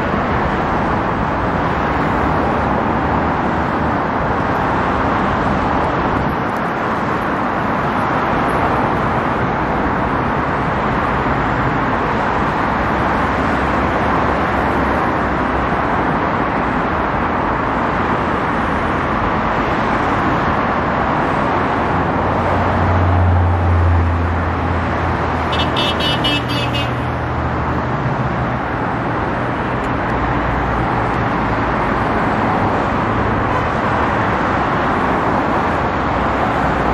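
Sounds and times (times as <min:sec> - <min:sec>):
vehicle engine drone: 0:00.0 - 0:36.9
road traffic hiss: 0:24.2 - 0:36.9.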